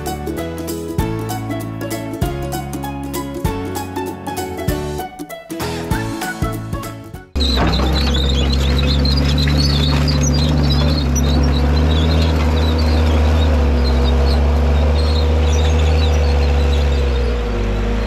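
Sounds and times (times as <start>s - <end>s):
diesel engine running: 7.4s - 18.0s.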